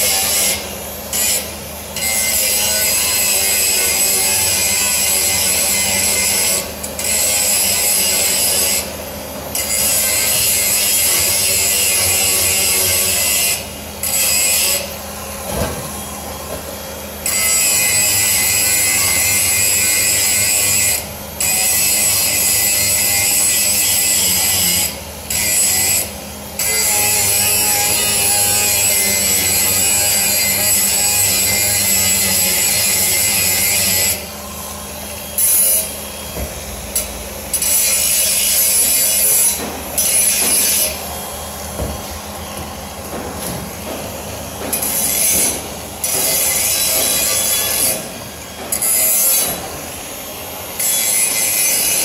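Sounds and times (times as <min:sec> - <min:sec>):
angle grinder grinding steel: 0:36.8 - 0:41.3.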